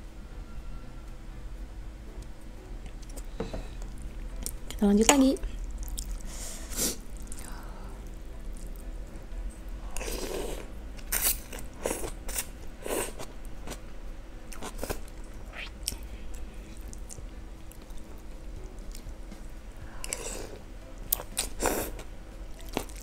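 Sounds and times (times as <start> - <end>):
slurping noodles: 10.0 - 13.2.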